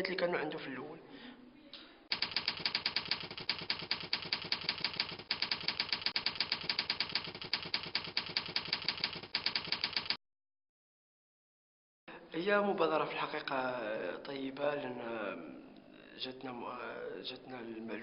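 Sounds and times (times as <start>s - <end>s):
typewriter keys clattering: 2.1s - 10.2s.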